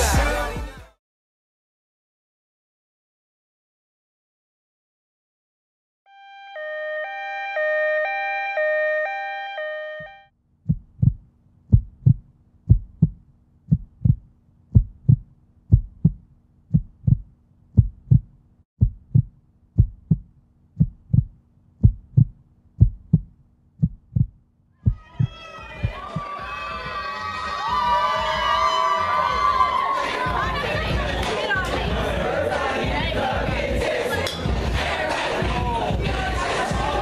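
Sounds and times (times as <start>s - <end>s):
heartbeat thumps: 10.0s - 27.1s.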